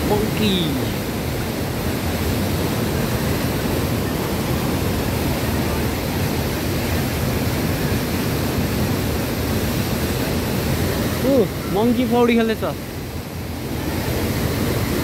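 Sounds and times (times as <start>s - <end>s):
stream rushing over boulders: 0.0s - 15.0s.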